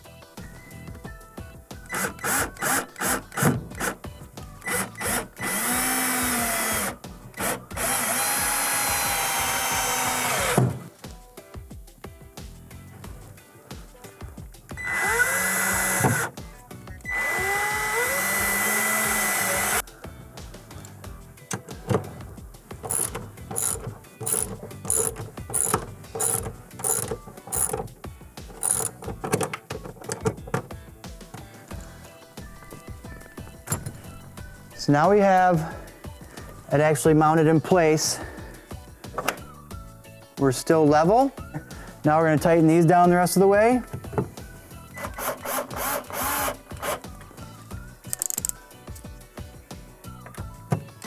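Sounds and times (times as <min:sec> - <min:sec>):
cordless drill whining: 0:01.9 - 0:04.0, 0:04.6 - 0:10.6, 0:14.8 - 0:16.3, 0:17.0 - 0:19.8, 0:22.9 - 0:27.8, 0:28.6 - 0:29.0, 0:44.9 - 0:47.0
ratchet wrench clicking: 0:22.8 - 0:27.9, 0:28.5 - 0:30.3, 0:48.1 - 0:48.6.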